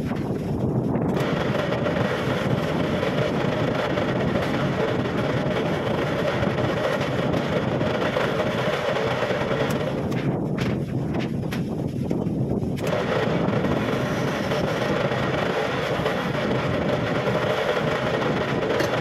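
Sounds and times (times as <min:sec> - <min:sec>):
wood lathe running: 0:01.1 - 0:10.4, 0:12.8 - 0:19.0
chisel cutting wood: 0:12.8 - 0:19.0.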